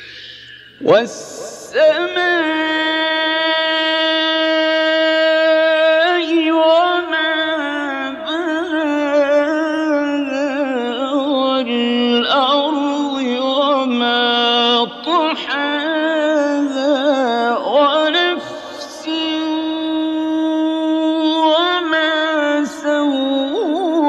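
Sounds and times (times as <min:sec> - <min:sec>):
man breathing: 0:00.0 - 0:00.8, 0:18.4 - 0:18.9
man chanting recitation: 0:00.0 - 0:24.0.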